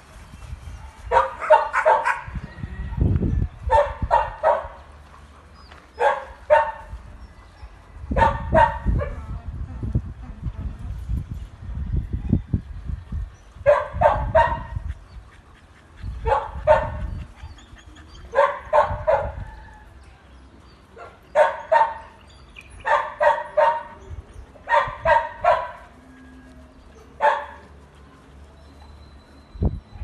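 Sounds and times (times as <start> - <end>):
dog barking high-pitched: 1.1 - 2.3, 3.7 - 4.7, 8.2 - 9.2, 13.7 - 14.7, 18.4 - 19.4, 21.4 - 22.0, 22.8 - 24.0, 24.7 - 25.8.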